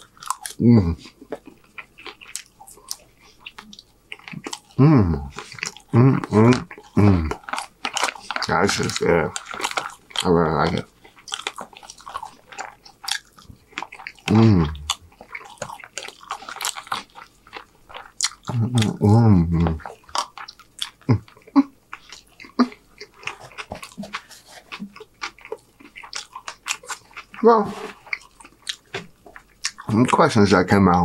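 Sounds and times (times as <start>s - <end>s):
close chewing with mouth smacks: 0.0s - 31.0s
person humming mmm: 0.6s - 1.1s, 4.7s - 7.4s, 14.3s - 15.0s, 18.5s - 19.8s.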